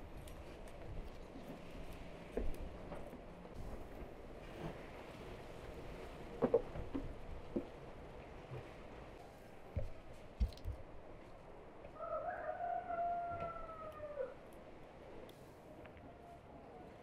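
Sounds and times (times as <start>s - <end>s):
rooster crowing: 11.9s - 14.4s.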